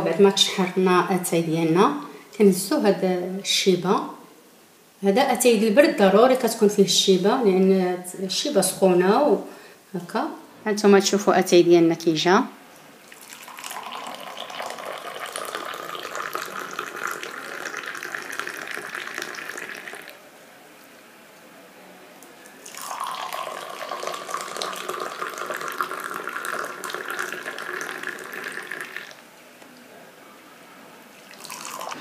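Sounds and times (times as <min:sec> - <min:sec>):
tea pouring into glass: 0:13.1 - 0:20.2, 0:22.6 - 0:29.2, 0:31.2 - 0:32.0.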